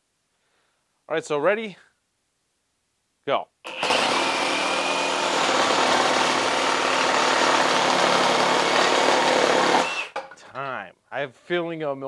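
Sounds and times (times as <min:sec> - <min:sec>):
reciprocating saw cutting wood: 0:03.7 - 0:10.2.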